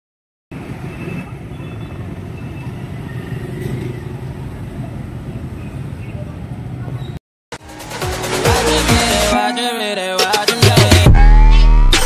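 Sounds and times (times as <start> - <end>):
motorcycle engines passing: 0.6 - 7.2.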